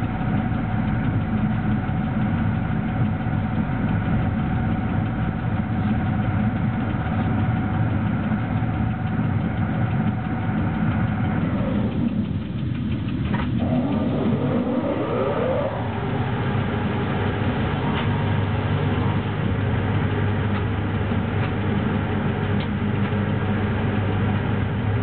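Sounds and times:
held hum: 0.0 - 25.0
locomotive running rumble: 0.0 - 25.0
rising whine: 10.1 - 21.2.

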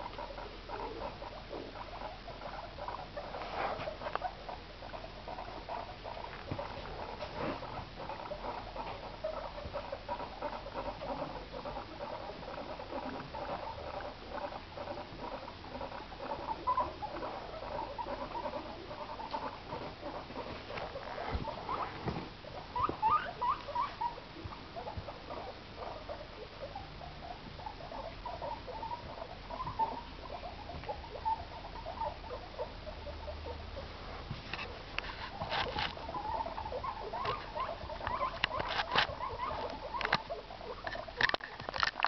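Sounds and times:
guinea pigs squeaking: 0.0 - 42.0.

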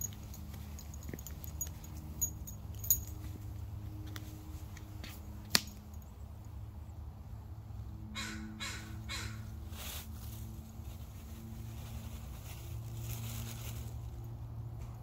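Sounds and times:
bird calling harshly: 8.2 - 9.4.

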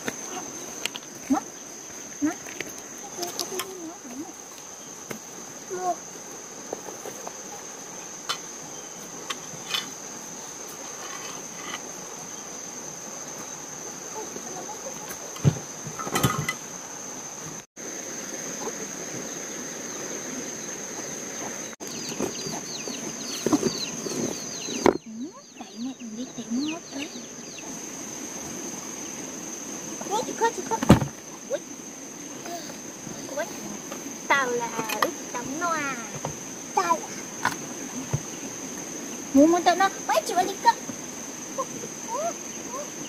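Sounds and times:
insects chirring: 0.0 - 43.0
knocks and rustles: 14.9 - 16.7, 21.9 - 25.8, 30.7 - 31.3.

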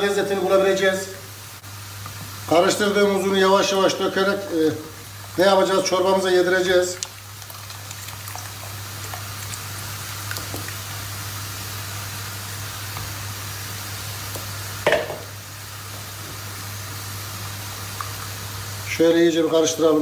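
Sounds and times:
liquid stirring and pouring: 6.6 - 11.1.

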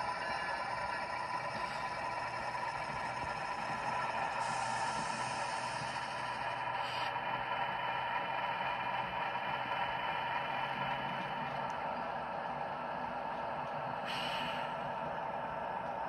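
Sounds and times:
model train motor humming: 0.0 - 16.0.

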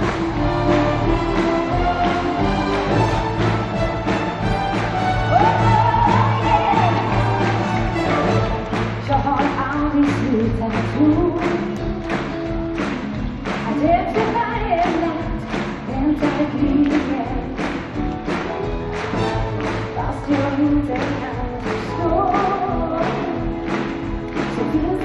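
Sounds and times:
steady driving beat: 0.0 - 14.4
symphony orchestra playing pop song: 0.0 - 25.0.

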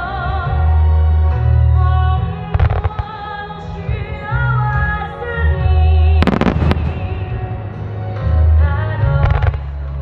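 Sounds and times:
slow music with deep bass: 0.0 - 10.0
firework bangs and crackles: 6.2 - 7.6.

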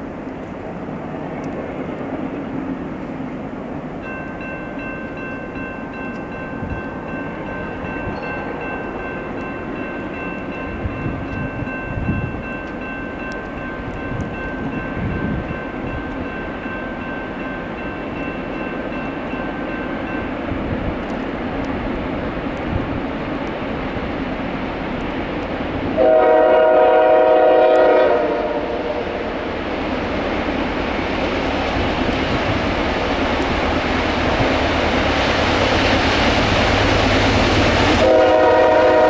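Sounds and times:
locomotive air horn chord: 26.0 - 29.3, 38.0 - 39.0.

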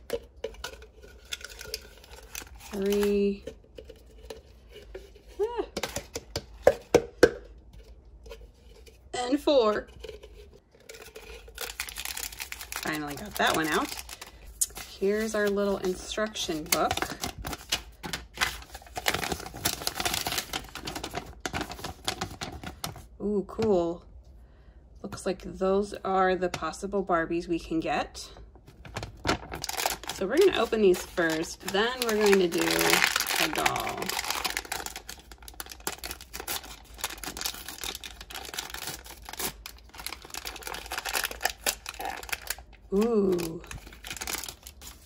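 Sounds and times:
paper crinkling and rustling: 10.8 - 23.1, 28.6 - 45.0.

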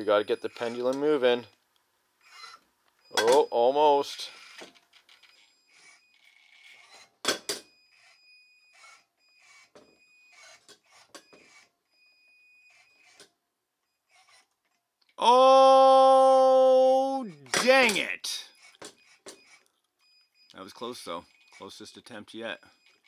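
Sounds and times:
small electric motor whining: 2.2 - 2.6, 4.3 - 7.1, 7.9 - 11.7, 12.7 - 13.3, 14.0 - 14.8
man exclaiming ohhh: 15.2 - 18.4.

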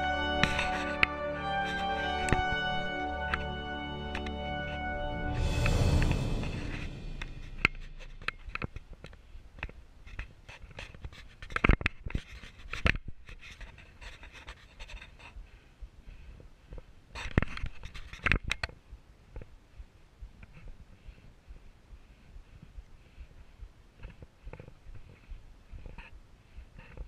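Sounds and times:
climber panting: 13.6 - 17.1, 19.6 - 27.0.

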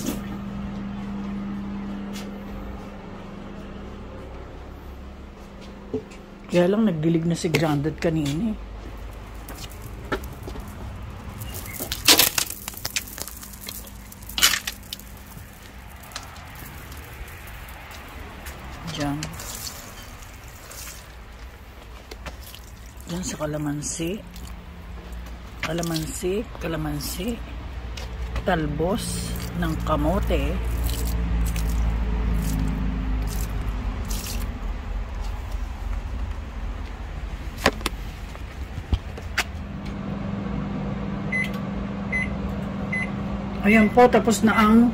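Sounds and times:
water pouring onto soil: 9.6 - 21.4, 22.3 - 24.6, 29.2 - 34.5.

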